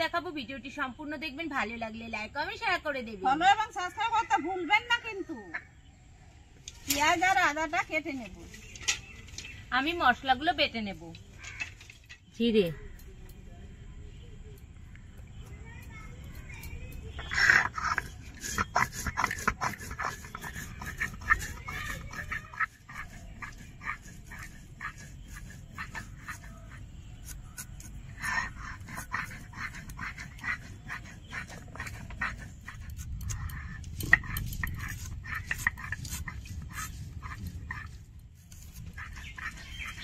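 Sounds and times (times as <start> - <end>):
stone scraping on stone: 15.4 - 40.0.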